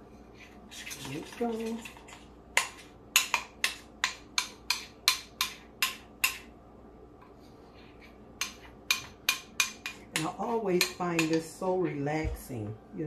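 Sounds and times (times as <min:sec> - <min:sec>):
spoon tapping mixing bowl: 0:00.9 - 0:06.5, 0:08.4 - 0:12.4.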